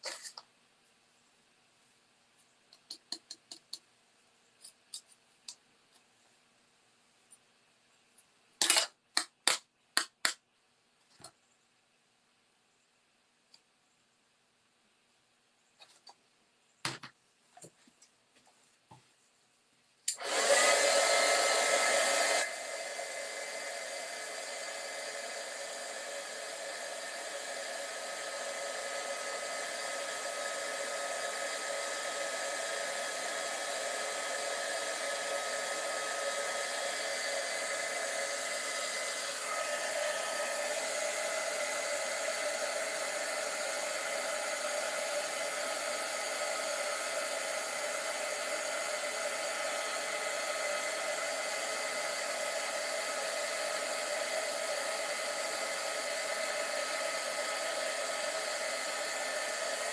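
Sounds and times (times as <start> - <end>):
heat tool blowing hot air: 20.1 - 59.9.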